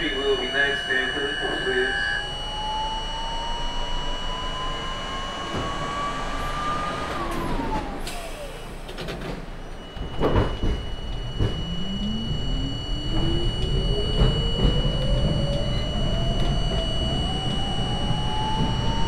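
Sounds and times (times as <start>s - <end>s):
subway train motor whine: 0.0s - 19.0s
wheels rumbling on track: 5.0s - 19.0s
train rattling and knocks: 8.8s - 11.8s, 13.1s - 16.8s.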